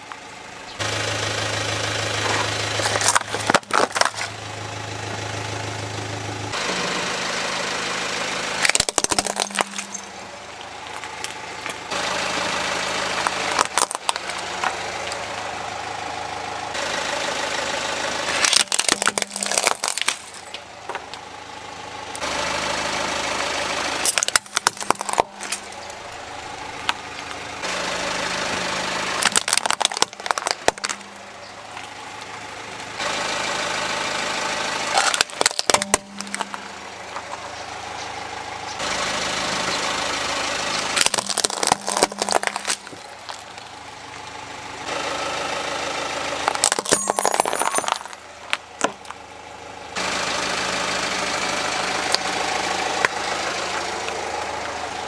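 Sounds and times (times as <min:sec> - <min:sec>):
car engine idling: 0:00.0 - 0:55.0
plastic toys cracking under tyre: 0:02.8 - 0:04.4, 0:08.6 - 0:10.0, 0:13.2 - 0:14.8, 0:18.4 - 0:21.2, 0:24.0 - 0:25.9, 0:29.2 - 0:31.1, 0:34.9 - 0:36.6, 0:41.0 - 0:43.6, 0:46.4 - 0:49.2.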